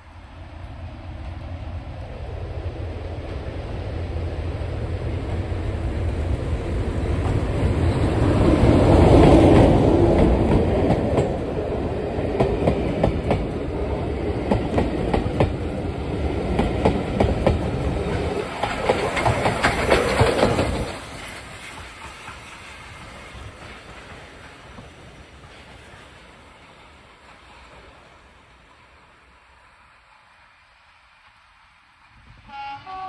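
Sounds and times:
diesel locomotive passing: 0.0 - 33.0
train wheels clacking over rail joints: 16.5 - 26.4.

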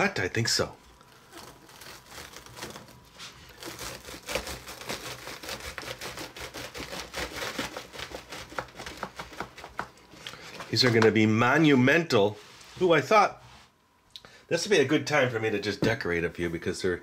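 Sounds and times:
crisped rice crackling: 0.8 - 10.5.

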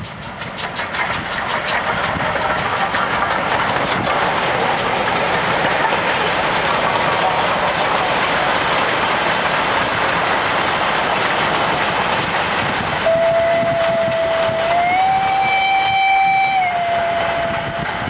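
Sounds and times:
train clattering over rail joints: 0.0 - 18.0
steam locomotive whistle: 13.0 - 18.0.

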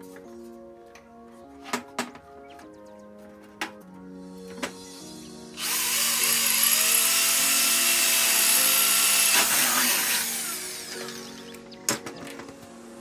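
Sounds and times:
electric drill boring into metal: 5.5 - 11.5.

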